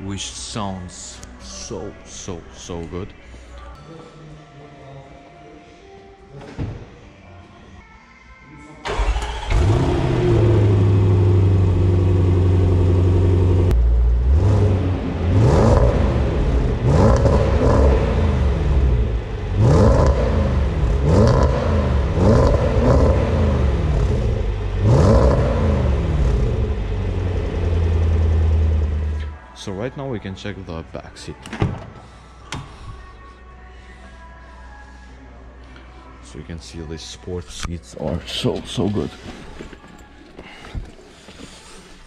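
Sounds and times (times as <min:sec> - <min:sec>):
car engine revving and idling: 0:08.9 - 0:29.4.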